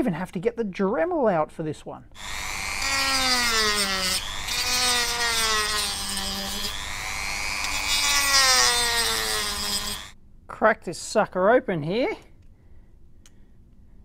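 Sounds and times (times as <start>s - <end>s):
rotary tool cutting plastic: 2.2s - 10.2s.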